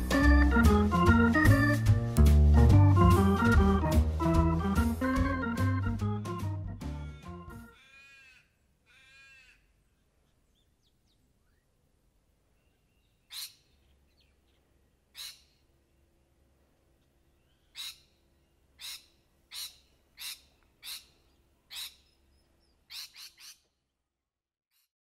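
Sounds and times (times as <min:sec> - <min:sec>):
parrot screeching: 0:07.0 - 0:09.6.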